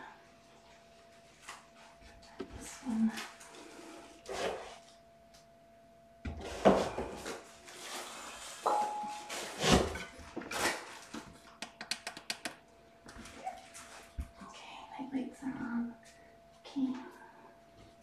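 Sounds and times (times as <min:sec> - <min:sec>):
handling knocks and rustles: 0:06.3 - 0:11.4.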